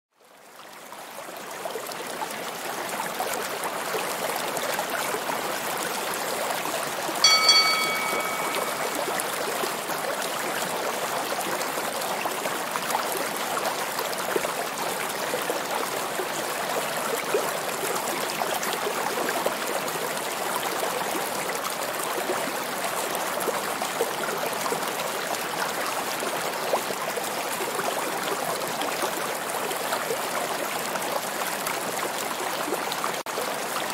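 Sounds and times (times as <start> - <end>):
short flat tone: 7.2 - 9.2.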